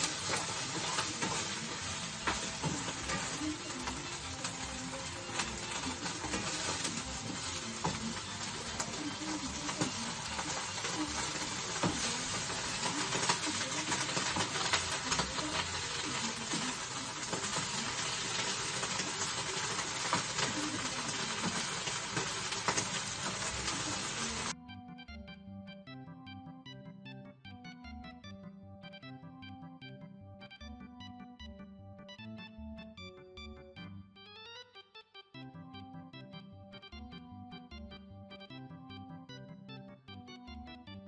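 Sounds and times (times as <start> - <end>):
vegetables sizzling in a frying pan: 0.0 - 24.6
music: 0.0 - 41.0.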